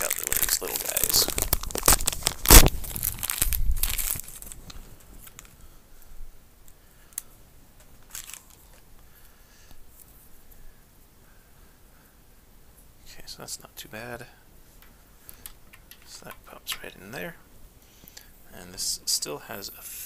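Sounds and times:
plastic packaging crinkling: 0:00.0 - 0:05.6, 0:07.9 - 0:08.9
faint cable handling clicks: 0:14.8 - 0:16.9.

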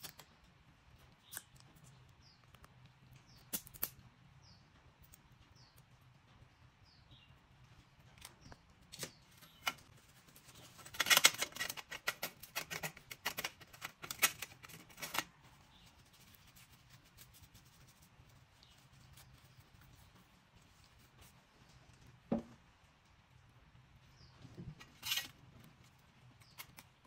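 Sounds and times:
metal parts clicking on steel tray: 0:10.8 - 0:15.3.

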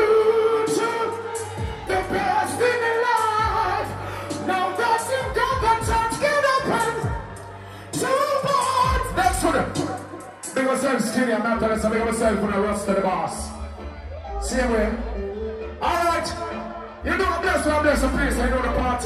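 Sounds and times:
man singing into microphone: 0:00.0 - 0:07.2, 0:07.9 - 0:09.9
reggae beat with kick and bass: 0:00.0 - 0:10.8, 0:16.2 - 0:19.0.

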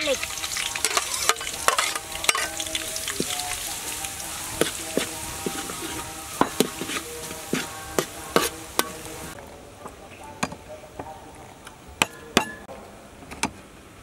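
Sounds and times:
garlic sizzling in hot oil: 0:00.0 - 0:09.4
metal spatula scraping pan: 0:00.2 - 0:03.4, 0:04.0 - 0:09.4.

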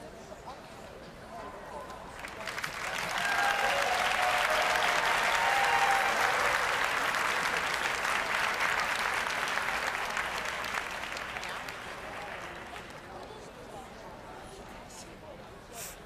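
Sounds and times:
audience applauding: 0:02.2 - 0:13.1.

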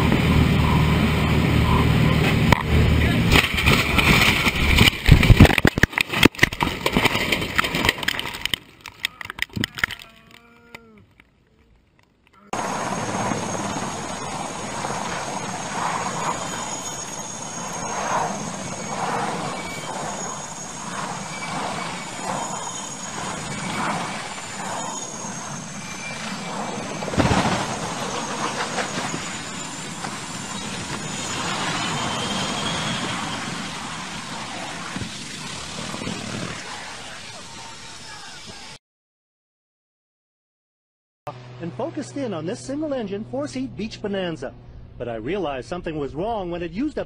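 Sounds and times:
high turbine whine: 0:00.0 - 0:07.9, 0:12.6 - 0:38.8
helicopter engines and rotors: 0:00.0 - 0:08.0, 0:12.5 - 0:38.7
loud rattling and knocks: 0:03.2 - 0:08.6.

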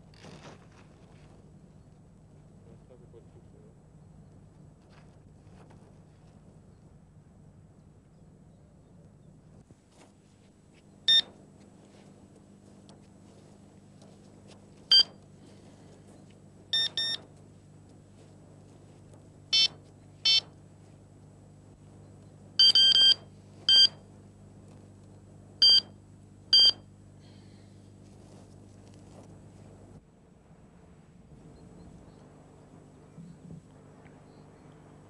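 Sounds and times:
bite alarm beeps: 0:11.1 - 0:11.3, 0:14.9 - 0:15.2, 0:16.7 - 0:17.2, 0:19.5 - 0:20.5, 0:22.6 - 0:24.0, 0:25.6 - 0:25.9, 0:26.5 - 0:26.9.

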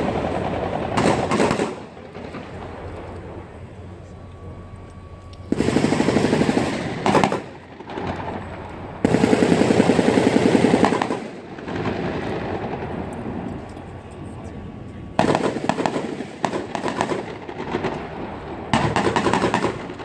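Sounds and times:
machine gun bursts: 0:05.5 - 0:08.2, 0:09.0 - 0:11.4.

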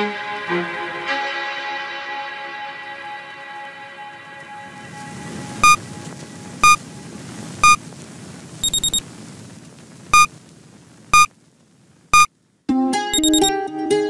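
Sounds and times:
electronic timer beeps: 0:08.6 - 0:09.0, 0:13.1 - 0:13.5.

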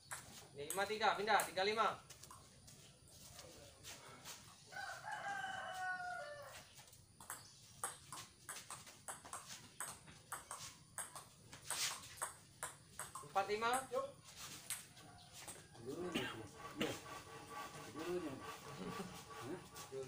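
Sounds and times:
rooster crowing: 0:04.7 - 0:06.7, 0:15.0 - 0:16.6
table tennis ball clicking: 0:07.2 - 0:13.9.

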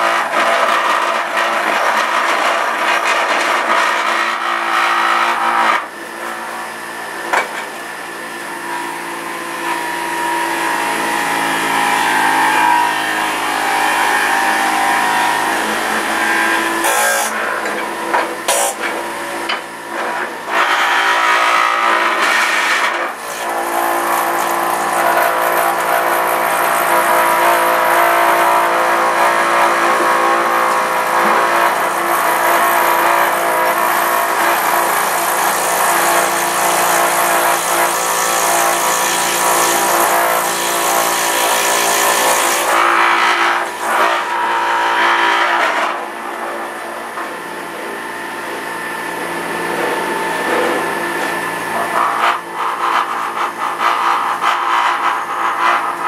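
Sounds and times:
juicer motor whining: 0:00.0 - 0:56.0.

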